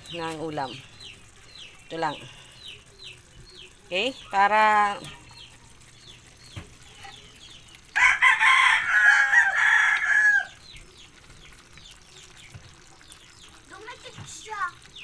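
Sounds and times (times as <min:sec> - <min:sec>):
rooster crowing: 0:07.9 - 0:10.6.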